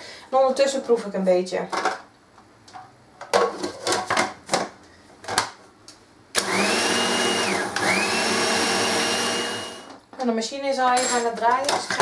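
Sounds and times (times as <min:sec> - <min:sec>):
food processor motor whining: 0:06.4 - 0:10.0.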